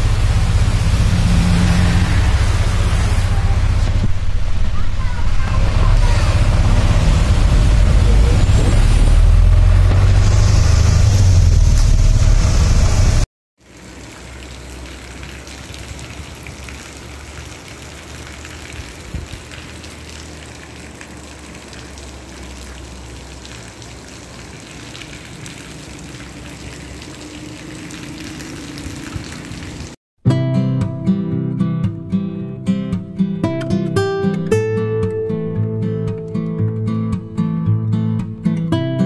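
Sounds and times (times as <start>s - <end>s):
heavy rain on roofs and street: 0.0s - 30.0s
rain on car windshield: 13.6s - 30.0s.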